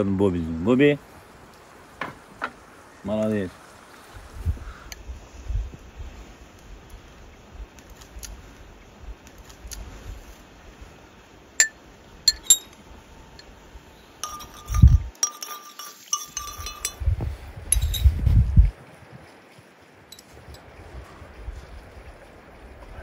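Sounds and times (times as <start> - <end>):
wind gusts on microphone: 3.4 - 11.0, 12.2 - 15.1, 16.4 - 23.0
teaspoon clinking against tea cup: 11.6 - 12.8, 14.2 - 17.0, 17.7 - 18.1.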